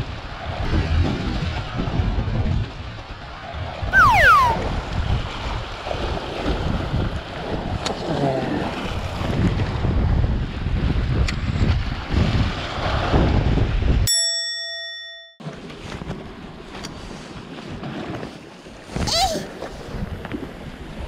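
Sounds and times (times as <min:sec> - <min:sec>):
wind buffeting microphone: 0:04.6 - 0:14.1.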